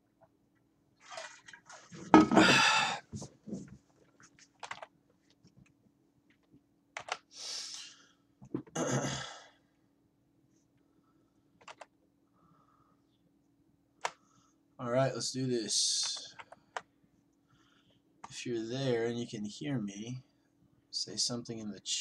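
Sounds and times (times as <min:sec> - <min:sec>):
faint steady hum: 0:00.0 - 0:22.0
keyboard and mouse clicks: 0:04.6 - 0:04.9, 0:07.0 - 0:07.3, 0:11.6 - 0:11.9.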